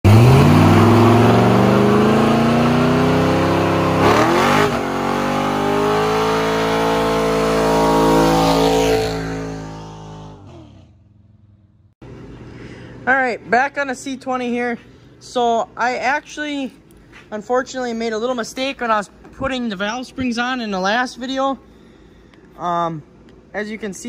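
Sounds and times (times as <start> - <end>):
pickup engine revving: 0.0 - 11.5.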